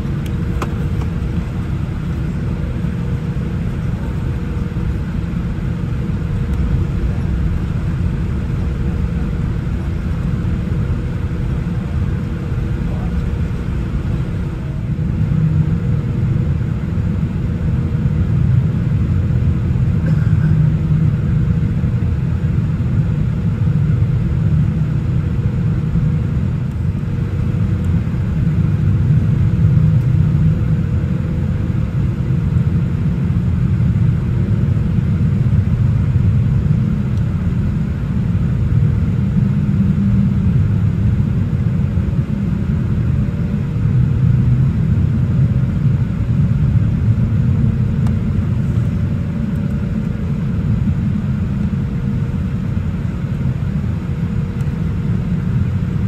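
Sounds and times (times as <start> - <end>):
cabin low rumble: 0.0 - 56.0
faint steady hum: 0.0 - 56.0.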